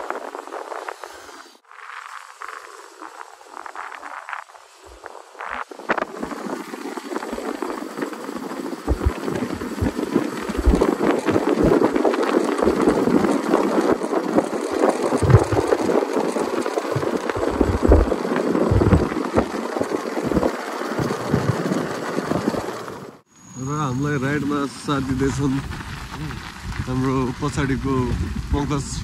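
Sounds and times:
wind rushing over microphone: 0.0 - 23.2, 24.2 - 29.0
motorcycle running and road noise: 8.8 - 23.2
low buffeting thumps: 8.9 - 12.0, 12.6 - 13.4, 15.1 - 22.7.

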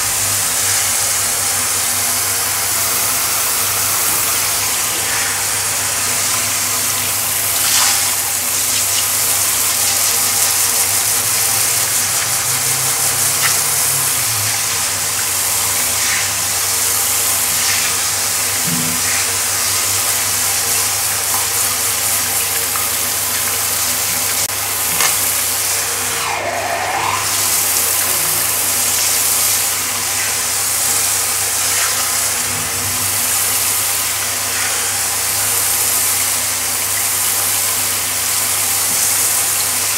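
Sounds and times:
shower spraying water on tiles: 0.0 - 39.9.

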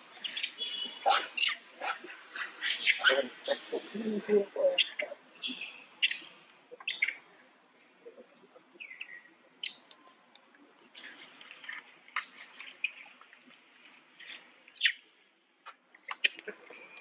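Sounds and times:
chirps squeaks and clicks: 4.8 - 7.2, 14.2 - 15.0.

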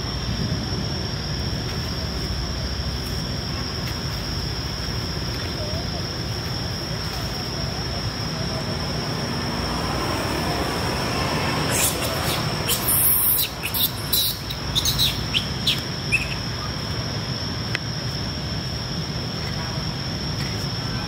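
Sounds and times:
high-pitched chirps and squeaks: 11.7 - 16.5.

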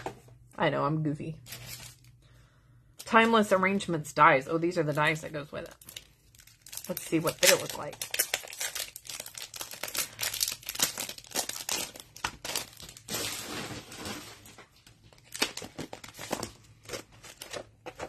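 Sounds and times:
plastic packaging crinkling: 1.4 - 2.2, 4.9 - 18.0.

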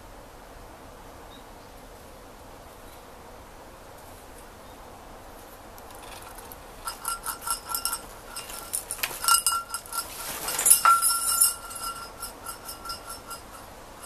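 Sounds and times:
fabric rustling: 6.0 - 13.6
small metal bells jingling: 6.3 - 14.0.

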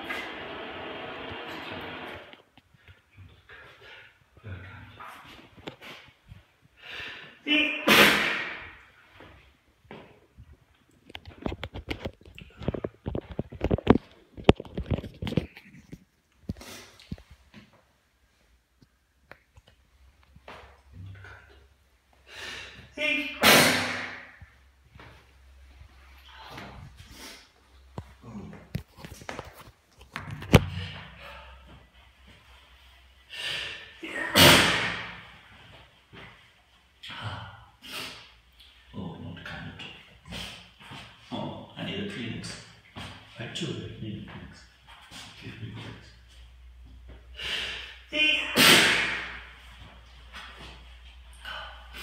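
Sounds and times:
person sneezing: 7.5 - 8.8, 22.4 - 24.2, 33.4 - 35.1, 47.4 - 49.5.

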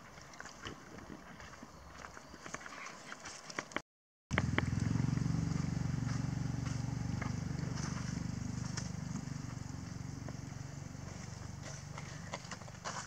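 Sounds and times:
motor engine drone: 4.3 - 12.8.

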